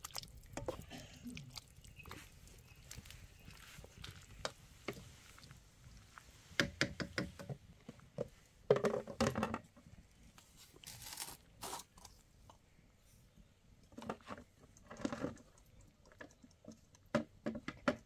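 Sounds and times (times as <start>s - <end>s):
objects knocking and clicking: 6.6s - 9.8s, 13.9s - 18.0s.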